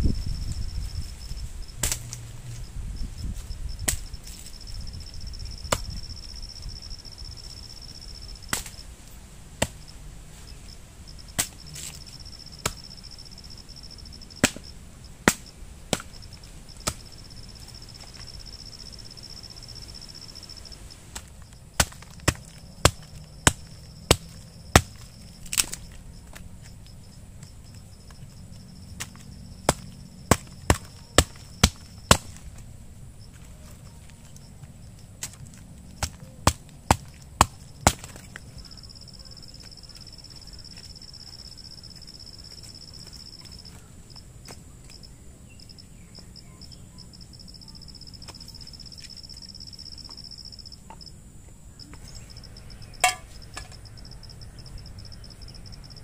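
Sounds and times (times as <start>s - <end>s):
high insect trill: 0.0s - 56.0s.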